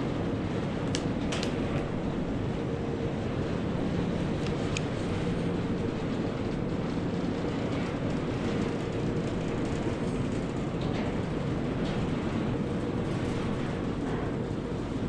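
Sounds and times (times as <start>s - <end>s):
conveyor belt mechanical rumble: 0.0s - 15.0s.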